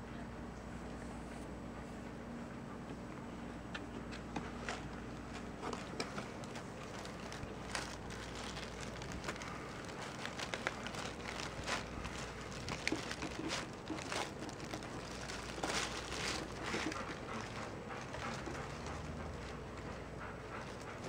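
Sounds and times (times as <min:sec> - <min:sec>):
tissue paper rustling: 0:05.3 - 0:18.6.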